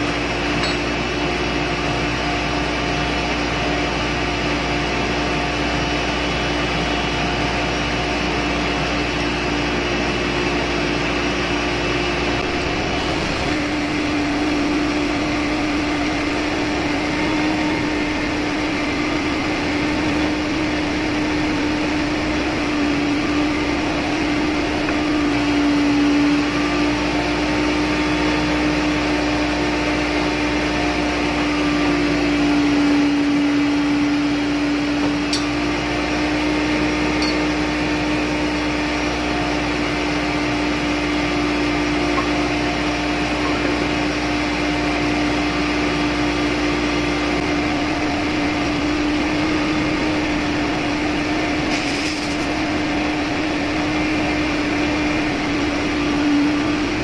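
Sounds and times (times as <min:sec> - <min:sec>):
engine room machinery hum: 0:00.0 - 0:57.0
low engine rumble: 0:11.0 - 0:27.6, 0:44.8 - 0:57.0.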